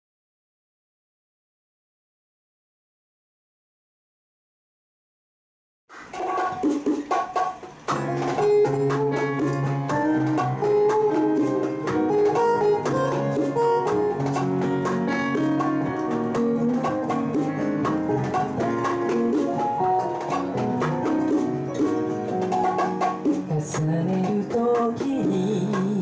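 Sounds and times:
acoustic band playing: 0:05.9 - 0:26.0
guitar: 0:05.9 - 0:26.0.

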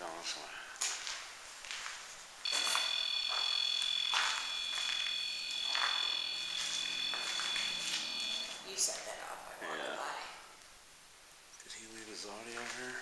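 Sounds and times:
soft scuffing: 0:00.8 - 0:08.3
high-pitched electronic tone: 0:02.4 - 0:08.7.

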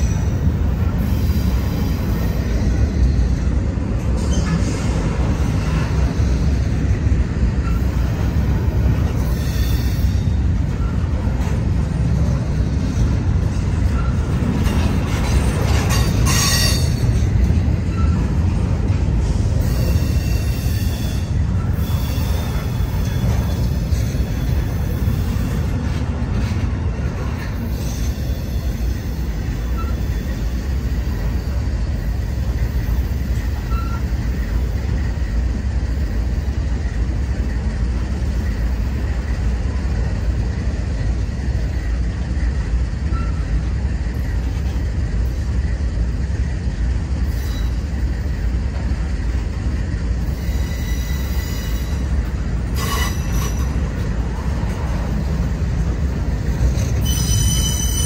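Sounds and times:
rumble of steel wheels on rail: 0:00.0 - 0:58.0
high wheel squeal: 0:09.1 - 0:11.1, 0:13.8 - 0:14.8, 0:15.7 - 0:18.3, 0:19.5 - 0:25.7, 0:27.6 - 0:34.5, 0:43.0 - 0:43.6, 0:47.2 - 0:48.1, 0:50.2 - 0:53.9, 0:56.6 - 0:58.0.

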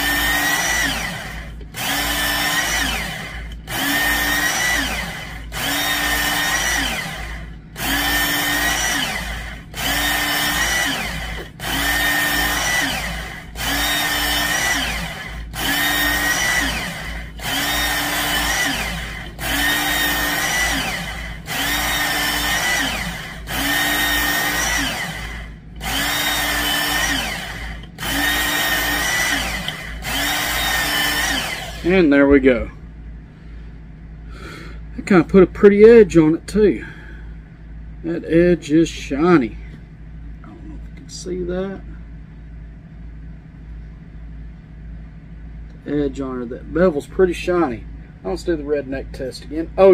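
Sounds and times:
belt sharpener motor whining: 0:00.0 - 0:32.4.

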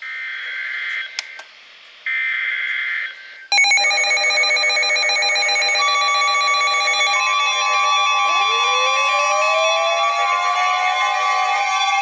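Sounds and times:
overlapping alarm beeps: 0:03.5 - 0:10.6.

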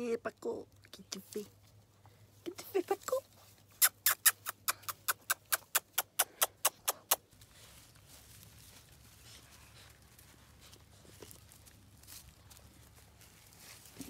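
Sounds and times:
puppy gnawing with clicking bites: 0:03.8 - 0:07.4.

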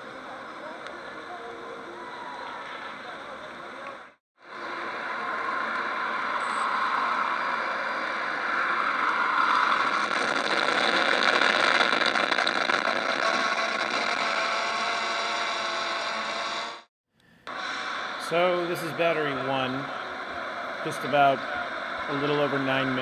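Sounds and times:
quadcopter buzzing whine: 0:04.4 - 0:16.9, 0:17.5 - 0:23.0.

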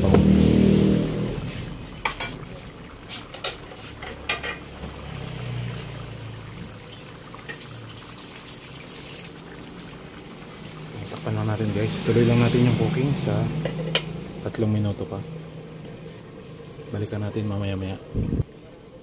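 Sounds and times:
stew bubbling in a pan: 0:00.0 - 0:14.6.

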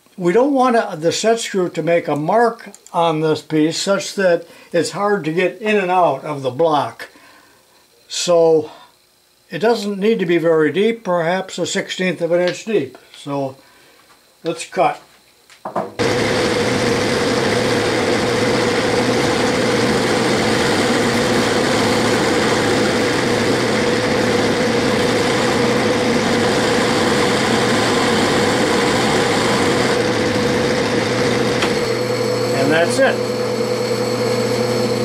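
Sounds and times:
metal lathe cutting whine: 0:16.0 - 0:35.0.

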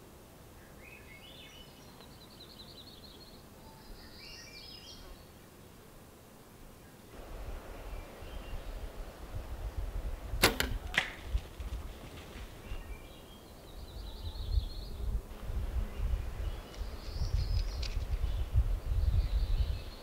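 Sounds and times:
bowstring release crack: 0:10.4 - 0:11.4.

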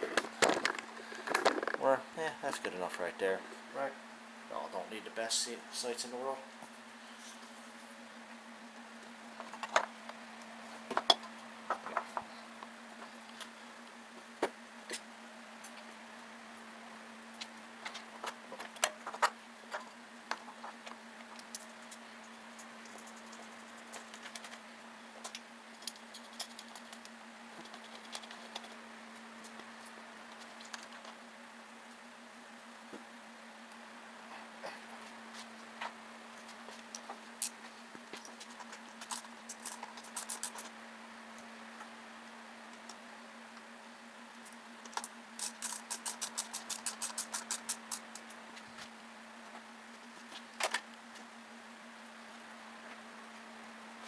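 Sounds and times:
steady low hum: 0:00.0 - 0:54.0
ratchet wrench clicking: 0:45.4 - 0:48.1.

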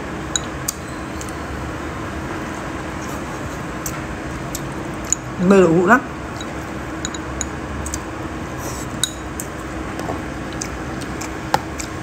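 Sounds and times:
steady background hum: 0:00.0 - 0:12.0
chopsticks clinking on ceramic bowl: 0:06.4 - 0:07.6.

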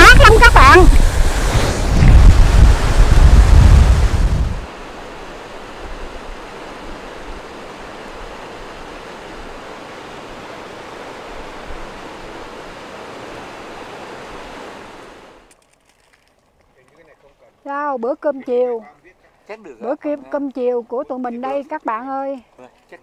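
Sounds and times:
wind buffeting microphone: 0:00.0 - 0:13.6
falling water rushing: 0:00.0 - 0:15.5.

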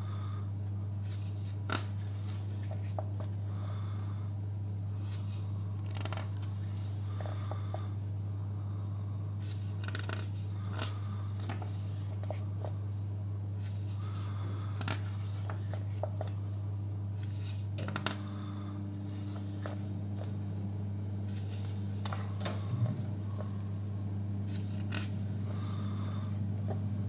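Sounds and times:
steady low hum: 0:00.0 - 0:27.0
book pages rustling: 0:01.0 - 0:03.4, 0:09.4 - 0:12.8, 0:13.6 - 0:16.5, 0:24.5 - 0:26.1.

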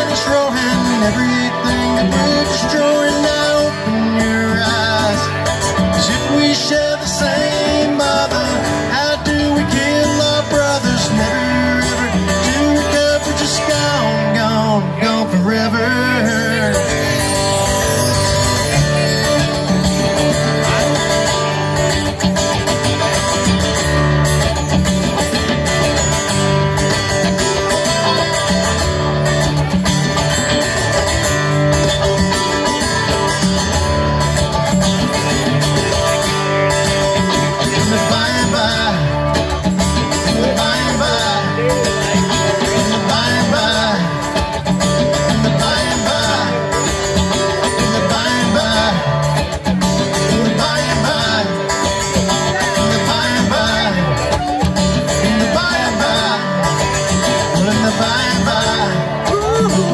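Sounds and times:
electric guitar: 0:00.0 - 0:59.9
live band playing: 0:00.0 - 0:59.9.

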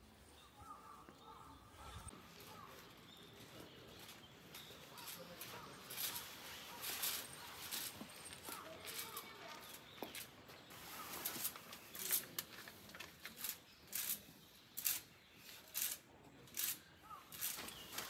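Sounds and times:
crunching footsteps: 0:02.3 - 0:12.3.

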